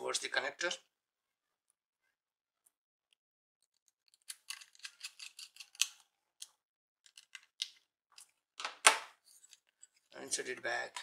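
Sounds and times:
screwdriver clicking and scraping: 0:04.1 - 0:06.5.

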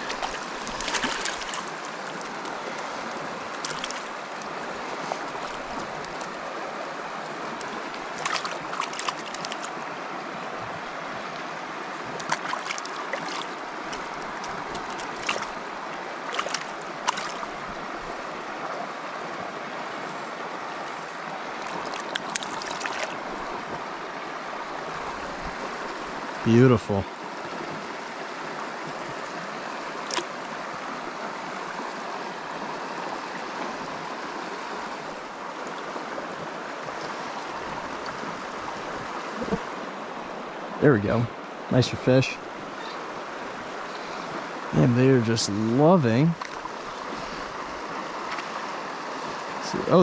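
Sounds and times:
water splashes and knocks: 0:00.0 - 0:06.5, 0:07.5 - 0:09.8, 0:12.0 - 0:18.2, 0:21.5 - 0:23.9, 0:30.0 - 0:30.5, 0:46.2 - 0:48.7
river running over rocks: 0:00.0 - 0:50.0.

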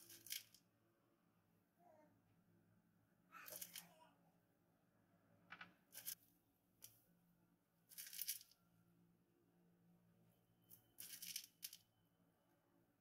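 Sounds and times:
parchment paper crinkling: 0:11.0 - 0:11.8.

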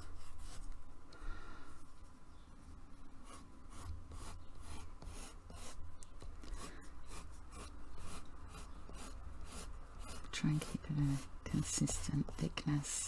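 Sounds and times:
pencil scratching on paper: 0:00.0 - 0:00.8, 0:03.2 - 0:05.8, 0:06.4 - 0:13.0.

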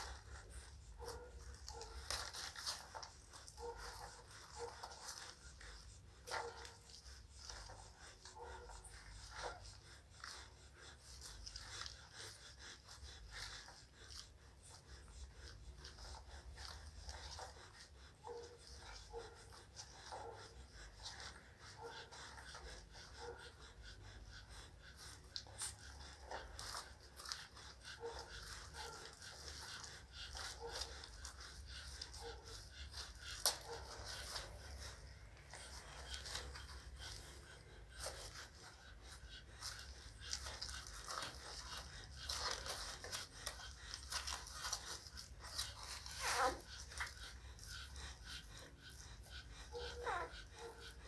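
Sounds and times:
dog panting: 0:00.0 - 0:51.0
puppies suckling wet smacking: 0:00.0 - 0:51.0
puppies squeaking: 0:28.1 - 0:51.0.

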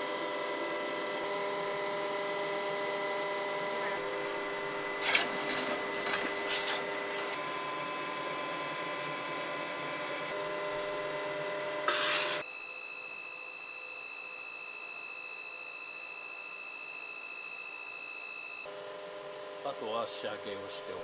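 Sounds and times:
thin high whine: 0:00.0 - 0:21.0
workshop machinery humming: 0:00.0 - 0:21.0
scraping and rasping: 0:04.9 - 0:07.3.

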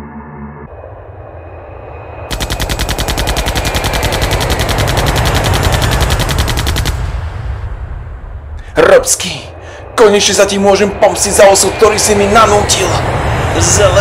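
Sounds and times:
low rumble: 0:00.0 - 0:14.0
cartoon blaster shots: 0:02.3 - 0:07.4.

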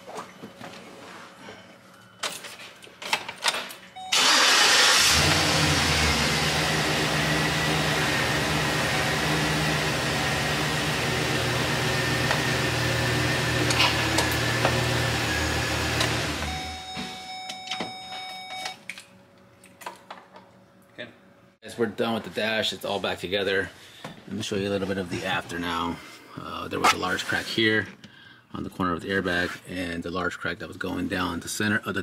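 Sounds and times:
truck engine cranking and idling: 0:04.1 - 0:16.6.

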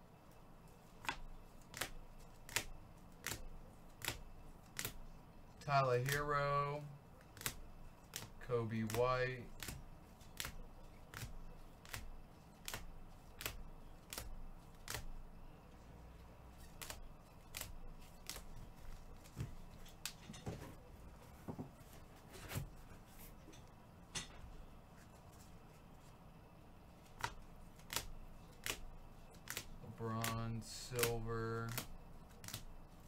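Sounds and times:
trading cards flipped and clicking: 0:01.0 - 0:05.0, 0:07.3 - 0:15.1, 0:16.6 - 0:20.2, 0:27.0 - 0:32.7.

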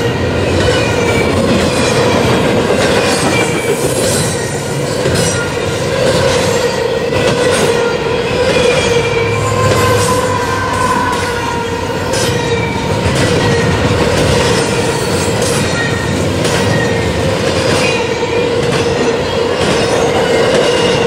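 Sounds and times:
diesel locomotive engine drone: 0:00.0 - 0:21.0
train wheels roaring: 0:00.0 - 0:21.0
wheels clacking at rail joints: 0:00.0 - 0:21.0
high wavering wheel squeals: 0:03.1 - 0:13.8.

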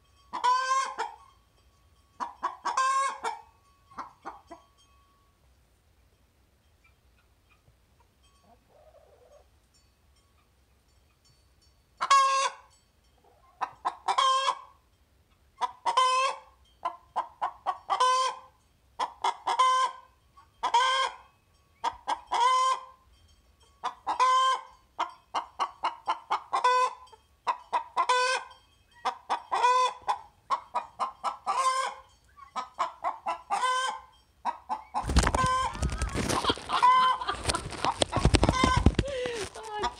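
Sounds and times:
hen cackling: 0:00.4 - 0:01.2, 0:02.2 - 0:03.4, 0:13.4 - 0:14.7, 0:15.6 - 0:20.0, 0:23.8 - 0:24.7, 0:25.4 - 0:39.9.

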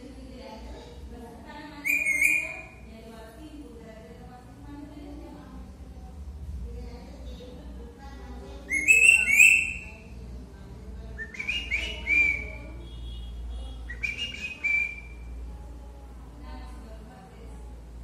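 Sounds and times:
parakeet whistling ringtone: 0:01.8 - 0:02.8, 0:08.7 - 0:09.9.

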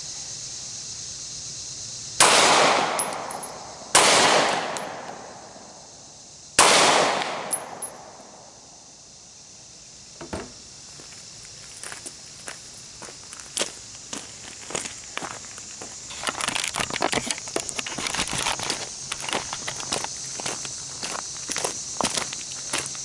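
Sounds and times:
pistol shots echoing: 0:02.2 - 0:05.2, 0:06.6 - 0:08.1.

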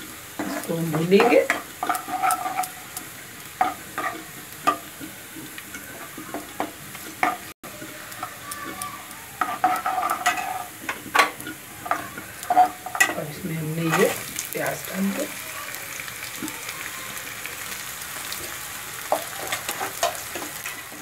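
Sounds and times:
spices sizzling in hot oil: 0:00.0 - 0:21.0
steel spoon scraping pan: 0:00.4 - 0:03.0, 0:03.6 - 0:04.9, 0:09.4 - 0:15.3, 0:19.1 - 0:21.0.

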